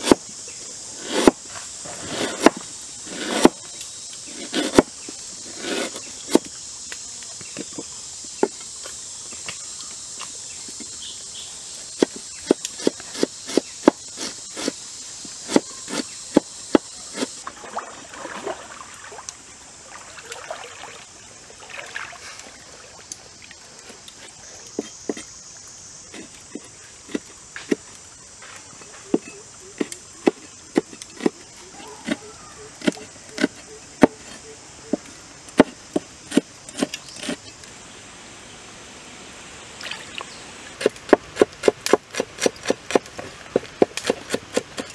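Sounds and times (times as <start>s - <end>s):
faint steady high hiss: 0.0s - 44.9s
knife chopping on wooden board: 1.1s - 1.4s, 2.0s - 3.6s, 4.4s - 4.9s, 15.4s - 17.3s, 32.8s - 34.3s, 35.6s - 37.4s, 40.8s - 44.9s.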